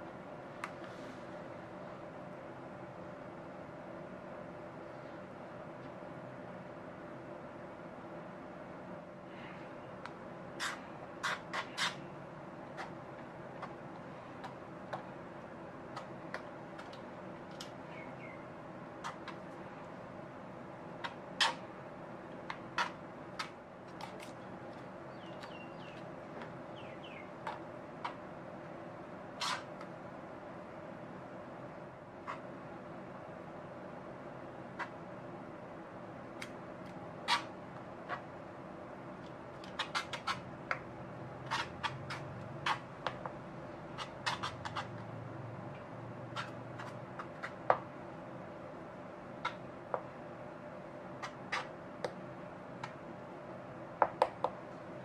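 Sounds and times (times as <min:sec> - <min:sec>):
low room hum: 0:00.0 - 0:55.0
small bird chirping: 0:17.8 - 0:19.2, 0:25.1 - 0:26.0, 0:26.7 - 0:27.4.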